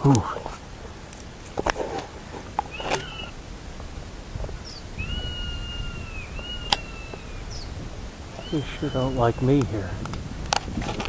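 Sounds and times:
eagle whistled calls: 2.7s - 3.5s, 4.4s - 10.0s.

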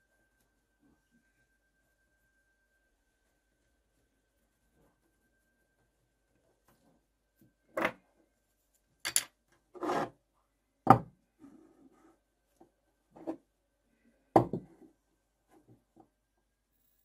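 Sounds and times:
metal pieces knocking on table: 9.0s - 9.3s.

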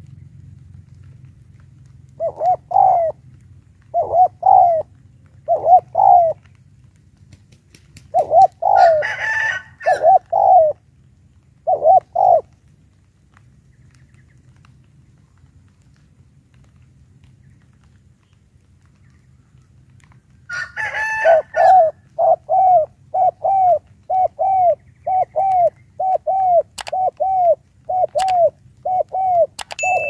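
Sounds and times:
dove cooing: 2.1s - 6.5s, 8.1s - 10.8s, 11.6s - 12.6s, 20.5s - 30.0s
harsh high sound with clicks: 26.8s - 27.1s, 29.6s - 30.0s.

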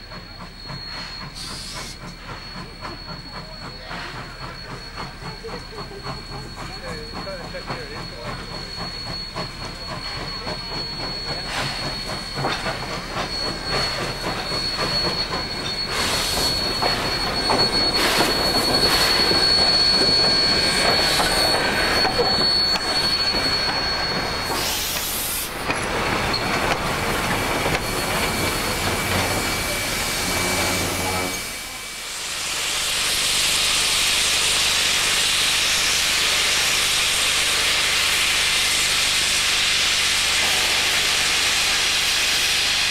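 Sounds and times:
steam locomotive exhaust beats: 0.0s - 42.9s
train noise: 0.0s - 42.9s
loud steam hiss: 0.2s - 42.9s
high-pitched wheel squeal: 0.3s - 25.6s, 26.3s - 31.9s.

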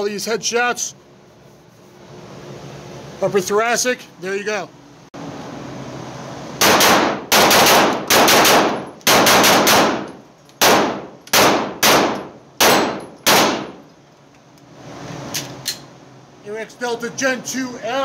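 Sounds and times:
pistol shots echoing indoors: 6.6s - 13.8s.

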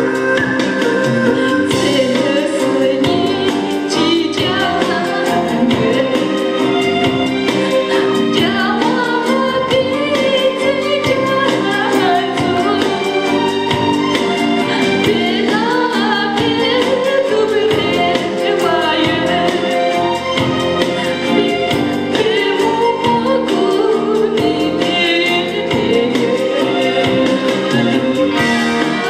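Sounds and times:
woman singing into a microphone: 0.0s - 29.0s.

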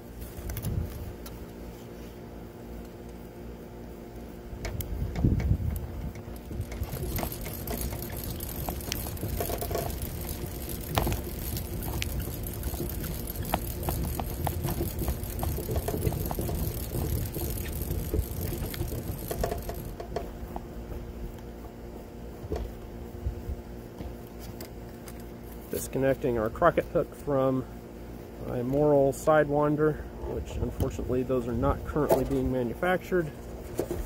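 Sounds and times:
hand winder whirring: 6.2s - 20.0s.

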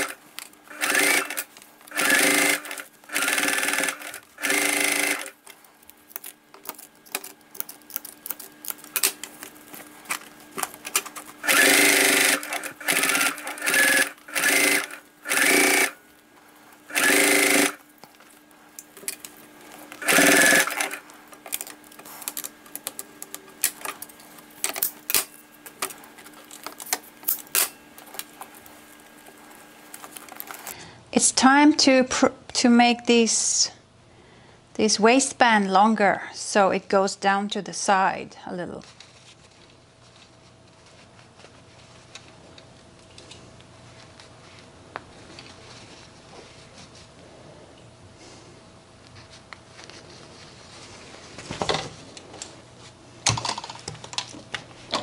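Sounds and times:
sewing machine stitching: 0.0s - 5.4s, 11.4s - 16.0s, 16.9s - 17.8s, 19.9s - 21.0s.

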